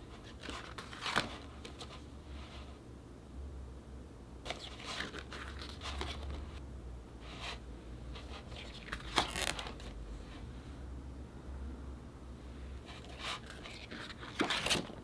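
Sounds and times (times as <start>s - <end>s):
packaging crinkling and rustling: 8.6s - 10.0s, 13.2s - 15.0s.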